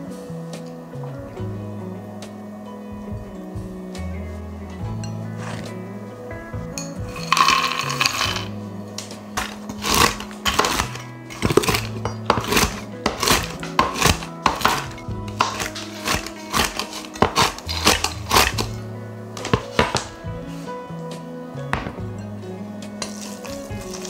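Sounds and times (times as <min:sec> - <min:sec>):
background music: 0:00.0 - 0:24.0
knife chopping nuts on wooden board: 0:09.4 - 0:18.8.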